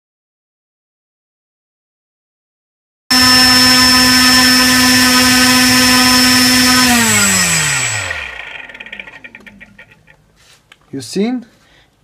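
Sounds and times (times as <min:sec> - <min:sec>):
electric motor propeller whine: 0:03.1 - 0:10.1.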